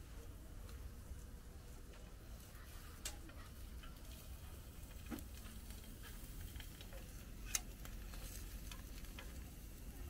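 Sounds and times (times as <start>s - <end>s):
fish sizzling in a pan: 2.2s - 10.0s
small clicks: 4.9s - 9.5s.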